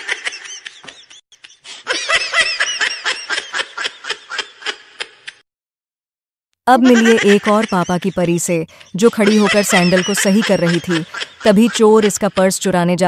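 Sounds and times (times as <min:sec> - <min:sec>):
high-pitched laughter: 0:06.7 - 0:12.7.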